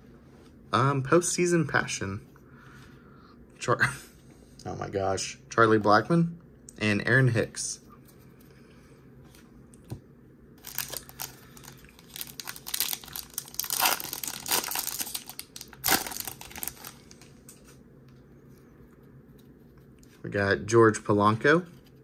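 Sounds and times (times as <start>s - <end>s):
foil wrapper crinkling and tearing: 10.6s - 17.6s.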